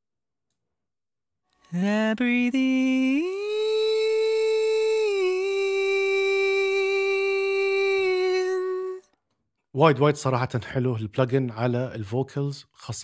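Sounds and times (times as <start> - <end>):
person singing a held note: 2.7 - 9.2.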